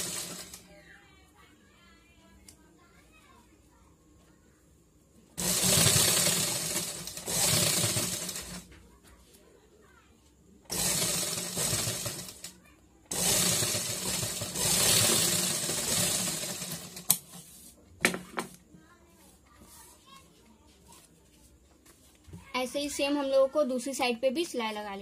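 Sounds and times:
sewing machine stitching fabric: 0:00.0 - 0:00.7, 0:05.4 - 0:08.7, 0:10.7 - 0:17.4.

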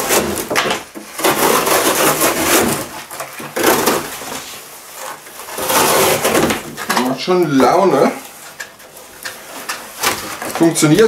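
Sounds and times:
knife sawing through cardboard: 0:00.0 - 0:06.6.

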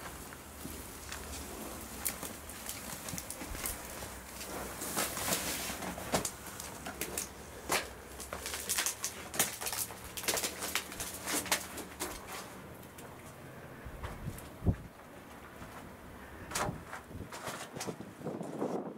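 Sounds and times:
footsteps on rubble and debris: 0:00.0 - 0:13.4, 0:14.0 - 0:18.6.

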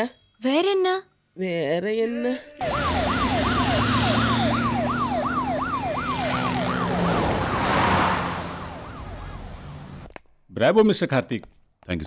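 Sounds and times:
police siren: 0:02.6 - 0:10.1
vehicle engine and road noise: 0:02.6 - 0:10.3.

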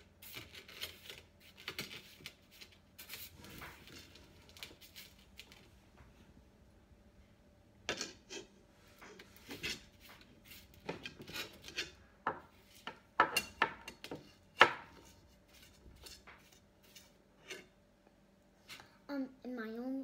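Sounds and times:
metal spoon scraping a metal pan: 0:09.4 - 0:12.0, 0:15.6 - 0:17.8.

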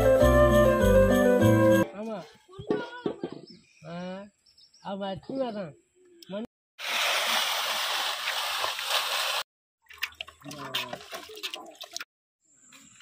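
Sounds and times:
water rushing: 0:06.8 - 0:12.0.

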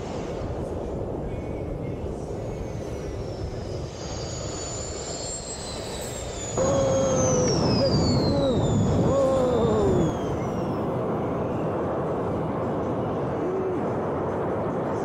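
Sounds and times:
higher whine: 0:00.0 - 0:15.0
jet turbine roar and whine: 0:00.0 - 0:15.0.

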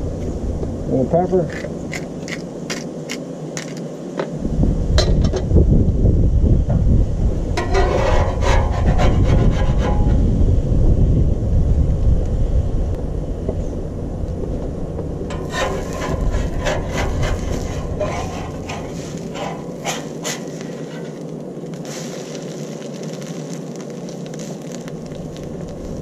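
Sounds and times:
loud low rumble: 0:04.4 - 0:19.8
metal spatula scraping griddle: 0:07.6 - 0:10.3, 0:15.3 - 0:22.3
pepper grinder rasping: 0:15.3 - 0:21.2.

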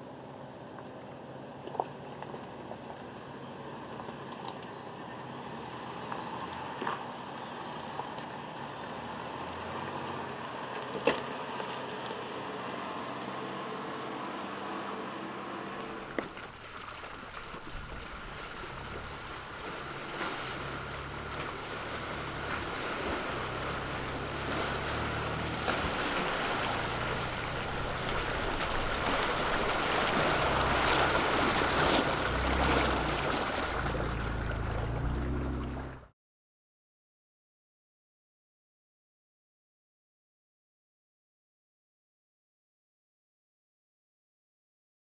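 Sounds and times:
truck engine running at low revs: 0:00.0 - 0:36.1
water sloshing and splashing: 0:16.0 - 0:36.1.

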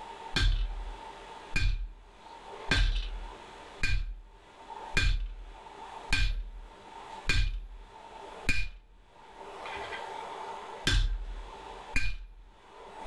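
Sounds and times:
faint steady hum: 0:00.0 - 0:13.0
hammer striking hot metal: 0:00.4 - 0:00.7, 0:01.6 - 0:01.9, 0:02.7 - 0:03.0, 0:03.8 - 0:04.1, 0:05.0 - 0:05.2.

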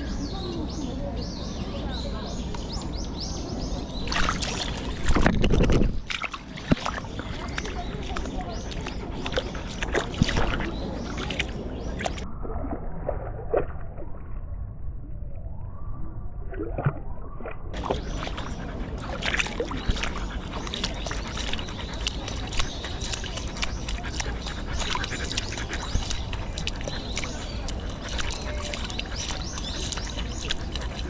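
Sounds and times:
paws splashing through water: 0:00.0 - 0:14.3, 0:16.7 - 0:31.0
water trickling over rocks: 0:04.0 - 0:12.2, 0:17.7 - 0:31.0.

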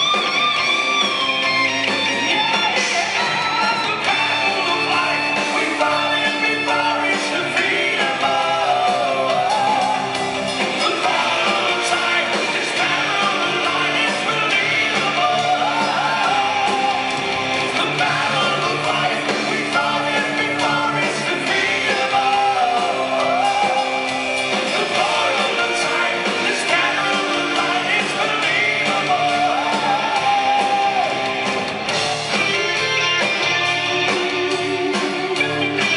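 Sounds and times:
live hard rock band playing: 0:00.0 - 0:35.9
lead vocalist singing: 0:01.8 - 0:32.8.

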